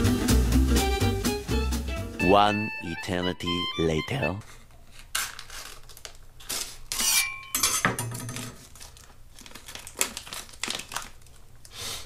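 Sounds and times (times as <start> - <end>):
stiff plastic crinkling: 4.7 - 7.0, 8.4 - 12.0
knife slitting plastic bag: 5.0 - 7.3, 8.6 - 12.0
knife blade ringing: 7.0 - 7.9.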